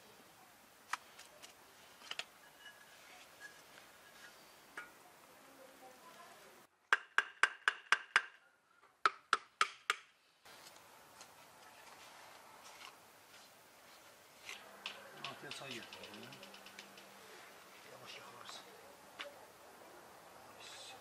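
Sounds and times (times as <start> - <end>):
trowel tapping clay brick: 6.9 - 8.4.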